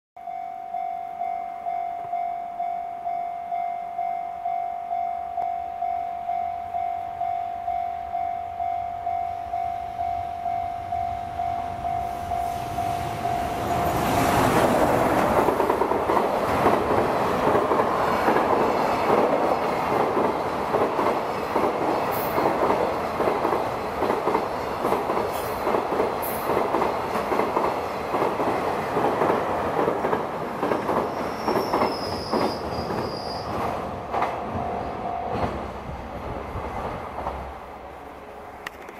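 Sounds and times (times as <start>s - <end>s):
train wheels clattering over rail joints: 13.9s - 33.2s
high wheel squeal: 31.1s - 33.6s.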